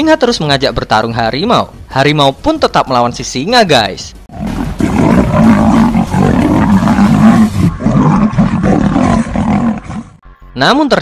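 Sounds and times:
lion and tiger roaring: 4.3 - 10.2.

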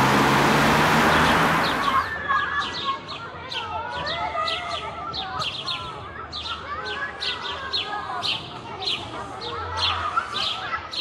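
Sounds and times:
birds chirping sharply: 0.0 - 9.2
wavering bird calls: 1.1 - 3.7.

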